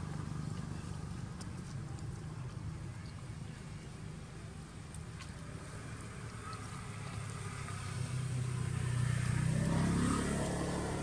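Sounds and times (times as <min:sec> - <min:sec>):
vehicle passing on road: 0:05.3 - 0:11.0.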